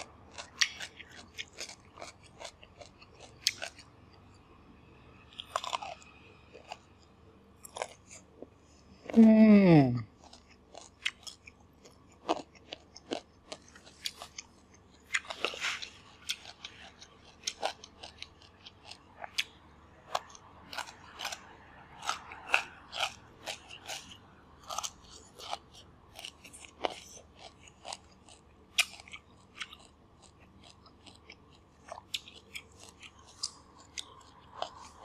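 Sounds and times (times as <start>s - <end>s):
chewing crunchy vegetable: 0.0s - 4.6s, 5.2s - 9.2s, 9.8s - 35.0s.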